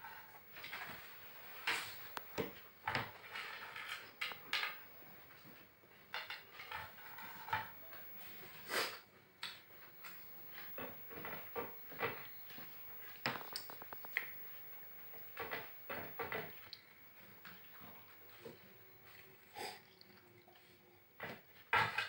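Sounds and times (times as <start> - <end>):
dishes clinking and knocking: 21.2 - 22.0.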